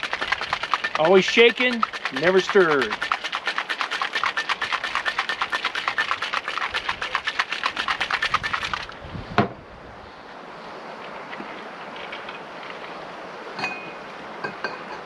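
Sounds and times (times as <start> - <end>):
ice rattling in cocktail shaker: 0.0 - 9.0.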